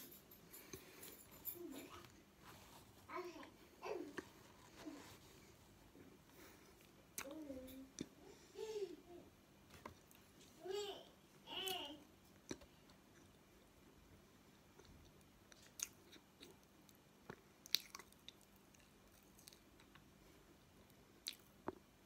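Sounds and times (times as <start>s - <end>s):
soft crunching chewing: 12.3s - 21.9s.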